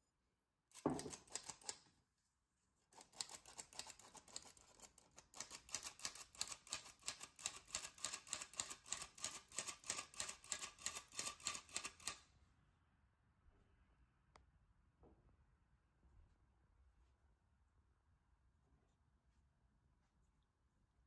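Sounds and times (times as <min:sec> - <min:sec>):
flour sifter clicking and rasping: 0:00.7 - 0:01.9, 0:02.9 - 0:12.2.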